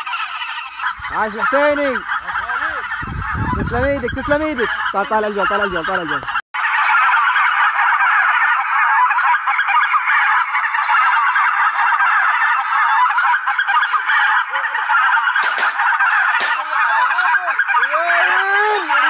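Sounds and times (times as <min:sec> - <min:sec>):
geese honking: 0:00.0 - 0:19.0
shotgun shots: 0:15.4 - 0:16.7.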